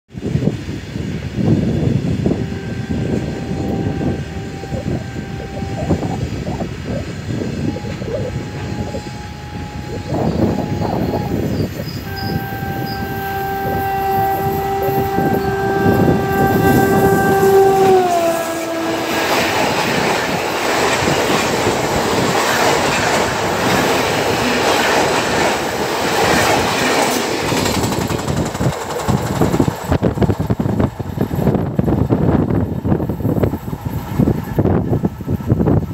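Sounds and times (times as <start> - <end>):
train horn blasts: 1.8 - 27.2
train wheels clattering: 10.3 - 35.9.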